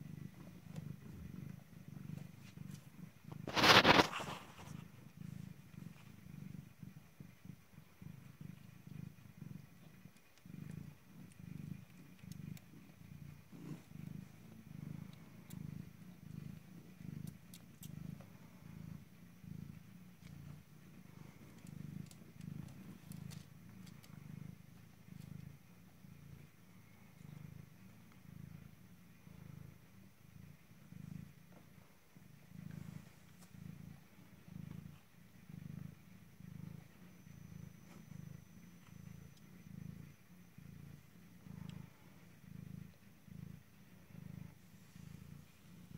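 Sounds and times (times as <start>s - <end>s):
cat purring: 0.0s - 45.9s
faint clicks: 9.8s - 13.0s, 13.8s - 18.3s, 21.2s - 24.4s.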